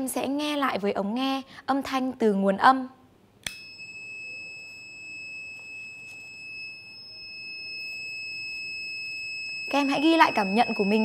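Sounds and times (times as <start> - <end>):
steady high-pitched beep tone: 3.6 - 11.0.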